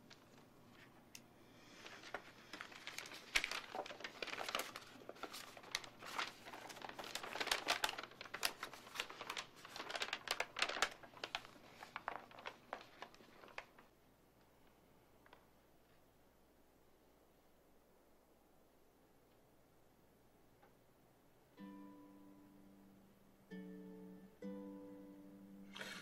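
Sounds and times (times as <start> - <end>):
paper crinkling and rustling: 0.0 - 14.0.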